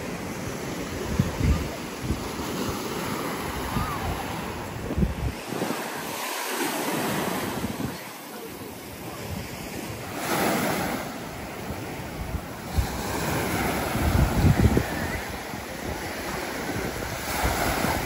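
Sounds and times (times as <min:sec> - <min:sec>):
surf washing on beach: 0:00.0 - 0:18.0
wind buffeting microphone: 0:00.8 - 0:06.3, 0:09.0 - 0:18.0.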